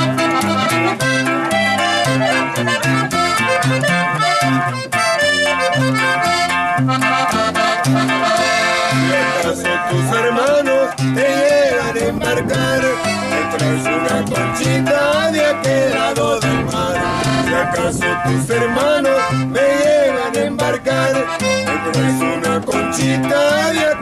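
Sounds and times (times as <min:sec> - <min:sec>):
button accordion melody: 0:00.0 - 0:24.0
plucked upright bass: 0:00.0 - 0:24.0
strummed guitar: 0:00.0 - 0:24.0
man singing: 0:08.0 - 0:24.0.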